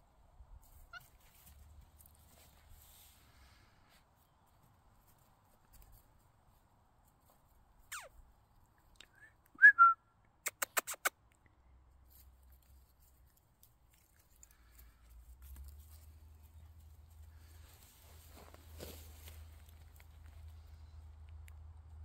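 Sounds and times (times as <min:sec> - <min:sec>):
person whistling: 0:09.0 - 0:10.1
sharp mouth clicks: 0:10.3 - 0:11.6.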